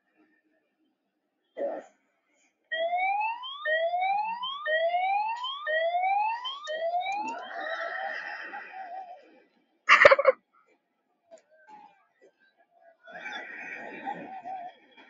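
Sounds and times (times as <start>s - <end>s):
siren-like whooping sound effect: 2.7s - 9.3s.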